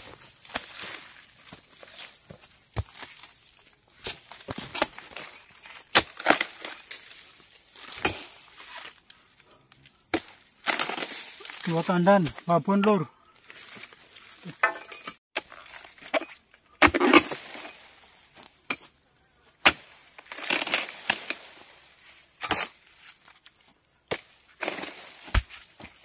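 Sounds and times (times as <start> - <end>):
fronds rustling: 0.0 - 14.6, 15.4 - 26.0
chisel chopping palm fronds: 5.9 - 7.0, 10.1 - 13.0, 19.6 - 21.6, 24.1 - 25.9.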